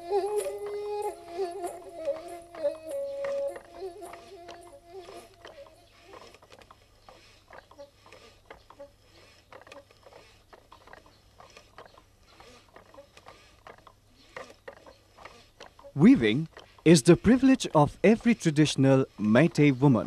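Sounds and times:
wooden hand loom clicking: 0.0s - 19.7s.

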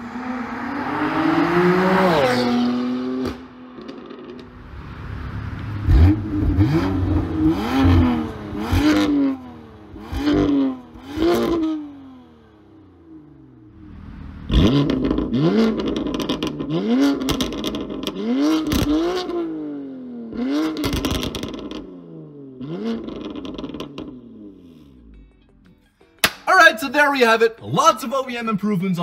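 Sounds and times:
car accelerating past: 0.0s - 12.4s, 13.6s - 19.5s
car engine revving: 0.0s - 25.0s.

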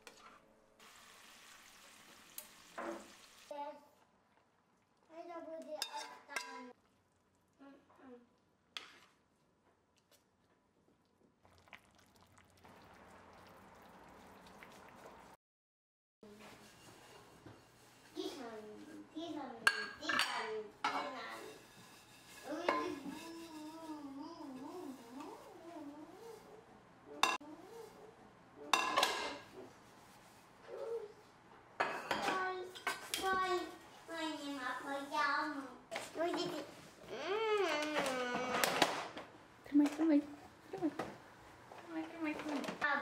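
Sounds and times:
pot bubbling with small pops: 10.8s - 15.4s
dishes clinking together: 19.7s - 21.2s, 28.7s - 29.5s.

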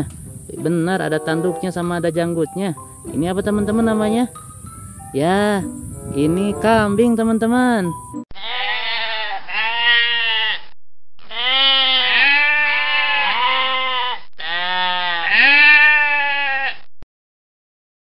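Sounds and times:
goat bleating: 8.4s - 16.9s.

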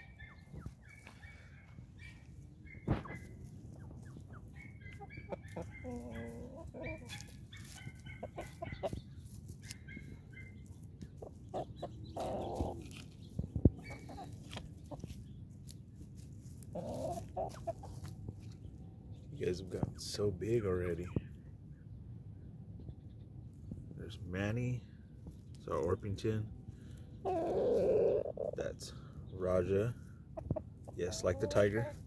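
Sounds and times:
chickens clucking: 0.0s - 18.8s, 27.1s - 28.7s, 29.4s - 32.0s.

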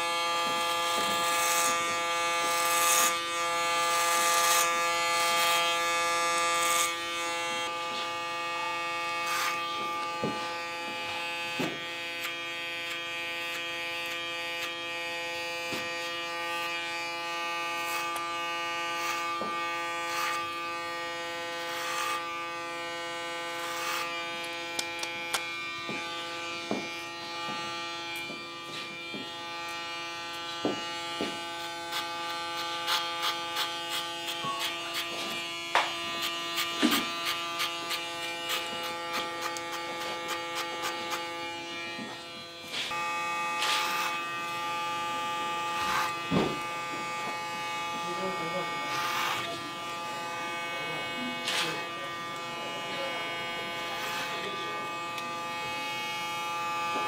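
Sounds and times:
electric hair clippers buzzing: 0.0s - 57.0s.

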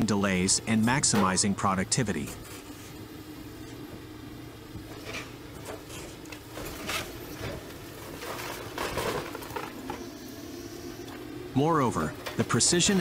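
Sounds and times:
excavator engine hum: 0.0s - 13.0s
rubble cracking and clattering: 6.2s - 10.0s.

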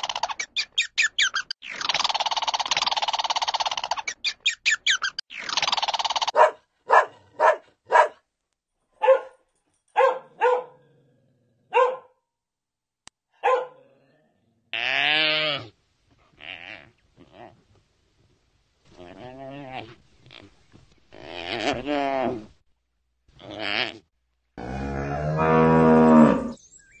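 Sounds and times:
dog barking: 6.3s - 8.2s, 9.0s - 10.8s, 11.7s - 12.2s, 13.4s - 13.8s.

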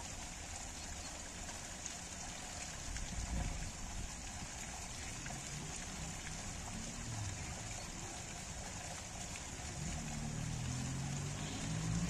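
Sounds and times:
water splashing onto rocks: 0.0s - 12.0s.

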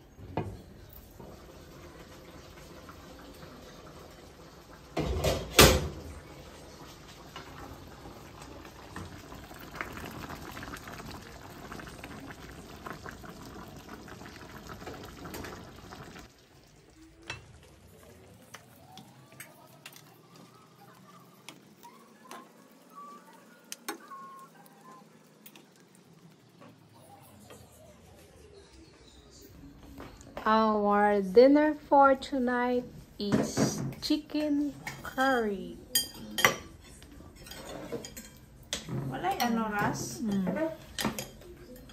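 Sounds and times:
curry simmering and bubbling: 0.1s - 30.4s
ladle stirring in pan: 35.9s - 41.9s.

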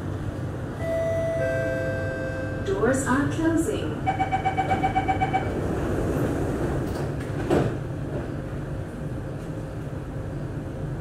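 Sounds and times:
train doors closing with a thump: 4.6s - 8.6s.

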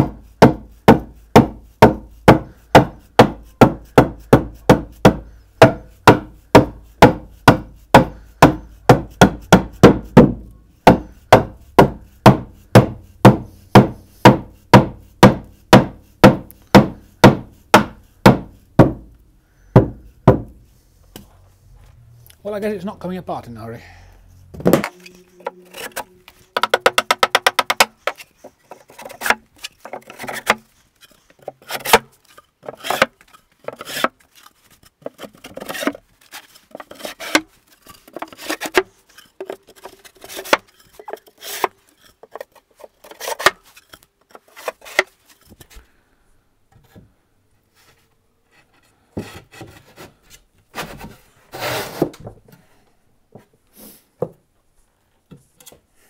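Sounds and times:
wood scraping and rubbing: 24.5s - 45.8s, 47.7s - 52.4s
wooden knocks: 24.6s - 30.6s
fast wooden rattle: 25.9s - 43.6s.

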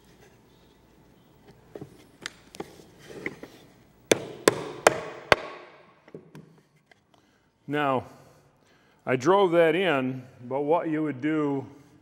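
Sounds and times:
wooden mallet knocking wood: 4.1s - 6.4s.

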